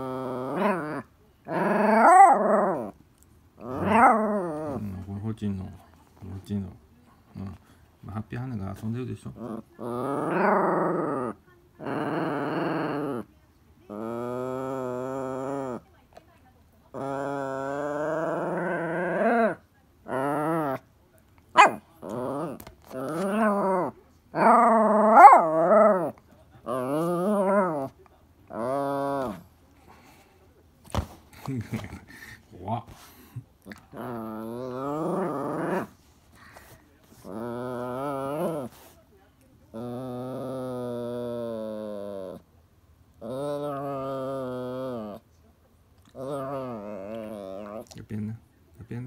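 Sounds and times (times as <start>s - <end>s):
dog whiny growling calls: 0.0s - 3.0s, 3.6s - 5.0s, 9.3s - 13.3s, 13.9s - 15.8s, 16.9s - 20.8s, 21.6s - 29.5s, 33.6s - 39.0s, 39.7s - 42.5s, 43.2s - 45.2s, 46.0s - 48.0s.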